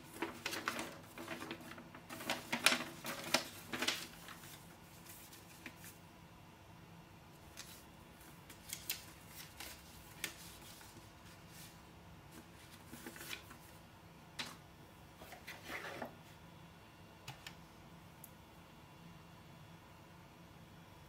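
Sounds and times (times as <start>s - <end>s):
paper leaflet rustling: 0.0s - 6.0s, 7.4s - 13.8s.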